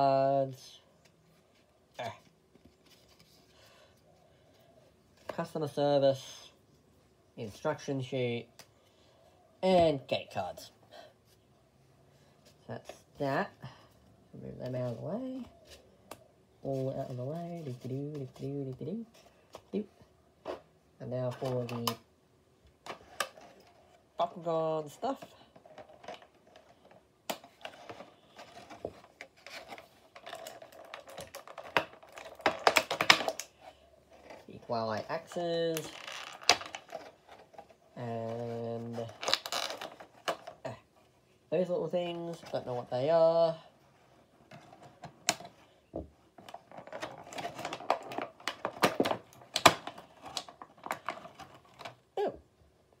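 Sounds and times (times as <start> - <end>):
packaging scraping and rubbing: 25.6 - 40.6, 46.3 - 52.0.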